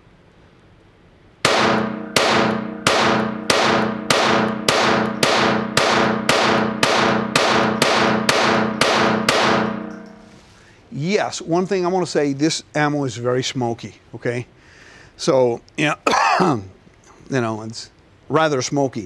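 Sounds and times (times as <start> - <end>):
pistol shots ringing indoors: 1.4 - 10.3.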